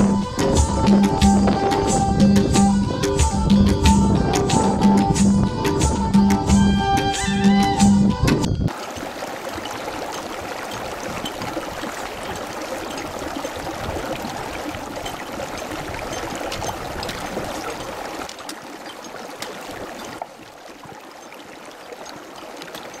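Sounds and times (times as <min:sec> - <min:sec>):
running water rushing: 0:08.7 - 0:23.0.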